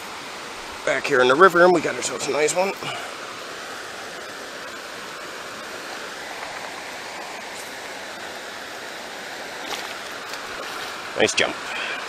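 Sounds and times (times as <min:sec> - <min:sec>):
river running over rocks: 0:00.0 - 0:12.0.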